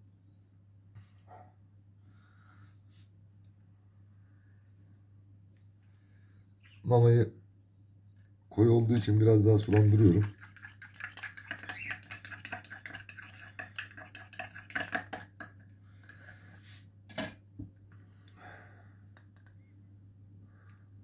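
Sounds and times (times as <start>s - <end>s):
teaspoon clinking in plastic cup: 9.6s - 15.6s.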